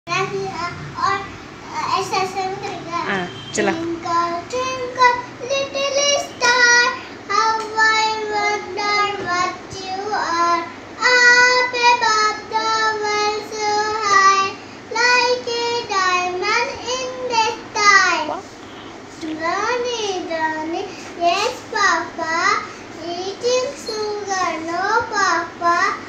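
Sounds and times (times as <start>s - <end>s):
girl singing: 0.1s - 18.4s, 19.2s - 26.0s.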